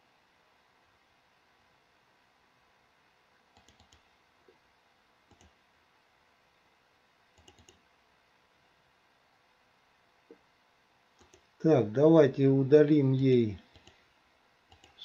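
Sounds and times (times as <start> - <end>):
faint computer mouse clicks: 3.6 - 4.1, 5.3 - 5.6, 7.4 - 7.8, 11.2 - 11.5, 13.7 - 14.0, 14.7 - 15.0.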